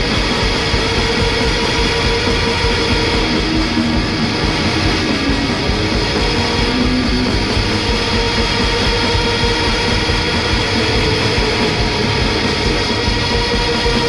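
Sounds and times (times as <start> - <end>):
instrumental rock music: 0.0 - 14.0.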